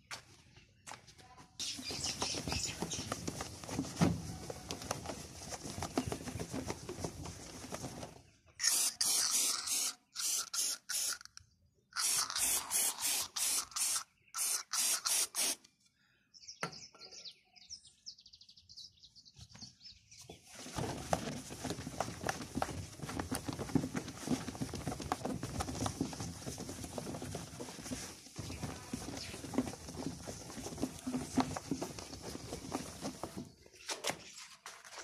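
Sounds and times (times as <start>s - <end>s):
aerosol can spraying: 8.6s - 11.4s, 12.0s - 15.6s.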